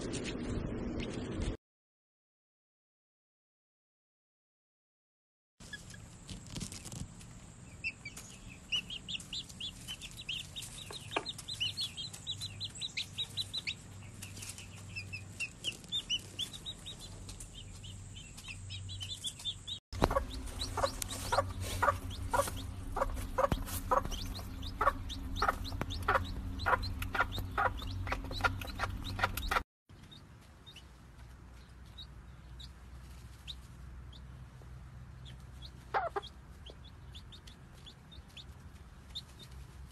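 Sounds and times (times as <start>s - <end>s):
chicks peeping: 5.6s - 39.9s
hen clucking: 7.7s - 30.8s, 35.1s - 39.6s.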